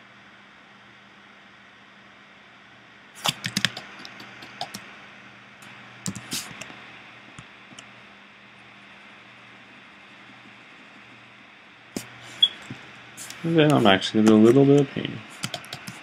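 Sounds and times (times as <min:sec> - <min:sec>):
low steady hum: 0:00.0 - 0:16.0
computer mouse clicks: 0:03.2 - 0:04.8, 0:06.0 - 0:06.8, 0:12.4 - 0:16.0.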